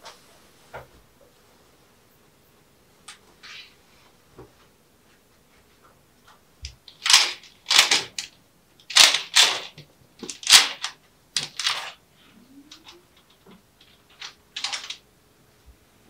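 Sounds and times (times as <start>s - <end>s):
curtain runners rattling and swishing: 6.9s - 12.0s, 12.8s - 15.0s.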